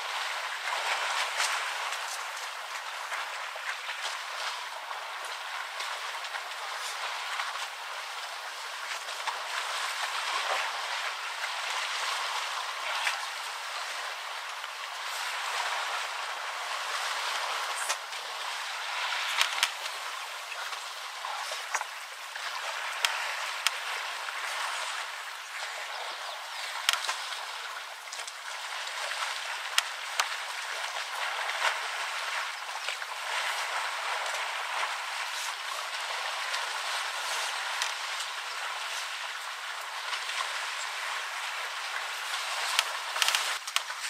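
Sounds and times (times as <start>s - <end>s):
muddy water sloshing: 0.0s - 44.0s.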